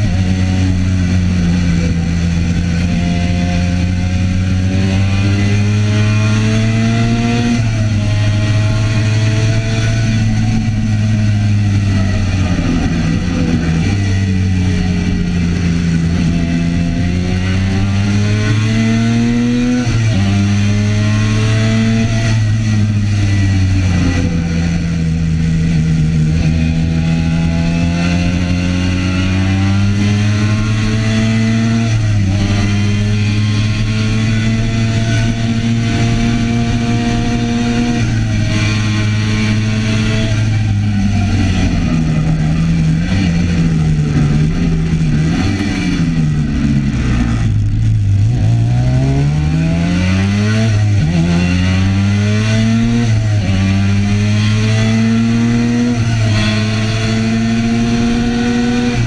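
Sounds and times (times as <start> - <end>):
racing motorcycle engine at full throttle: 0.0 - 59.0
wind rush: 21.7 - 59.0.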